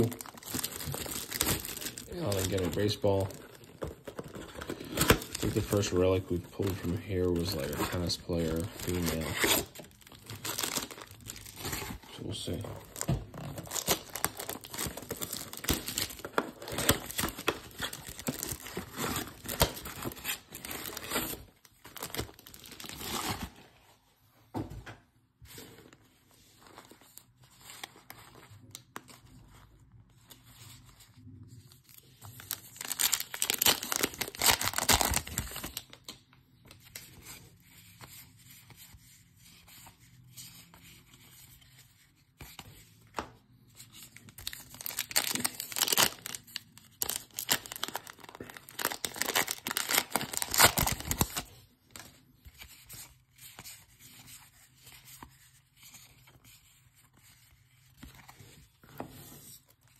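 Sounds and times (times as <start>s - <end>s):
cards rustling and flicking: 0.0s - 21.4s
card pack wrappers tearing: 0.0s - 23.5s, 32.4s - 36.0s, 44.4s - 52.1s.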